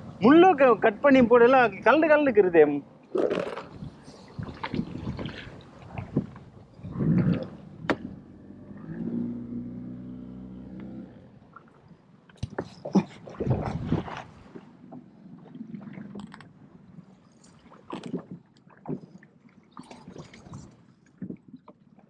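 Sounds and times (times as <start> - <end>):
knocks and rattles on boat: 3.2 - 8.3, 12.3 - 15.2, 17.6 - 19.2, 19.8 - 22.0.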